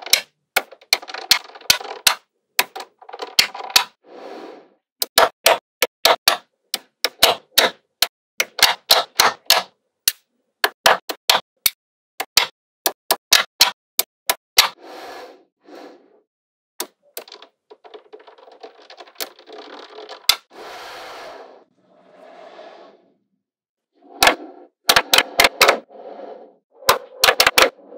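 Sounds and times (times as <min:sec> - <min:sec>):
loose balls rattling: 0:00.0 - 0:03.9, 0:16.8 - 0:20.5
magnetic balls snapping together: 0:24.1 - 0:25.8, 0:26.8 - 0:27.8.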